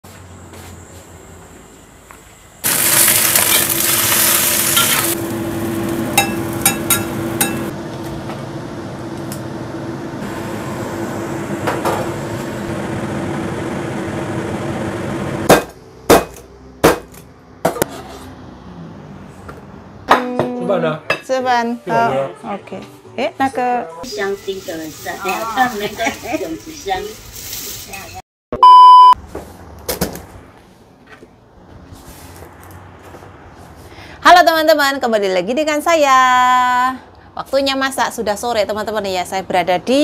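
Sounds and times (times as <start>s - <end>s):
loud hissing sizzle: 2.6s - 7.7s, 24.0s - 28.2s
steady hum: 5.1s - 15.5s
loud sharp knocks: 15.4s - 17.9s.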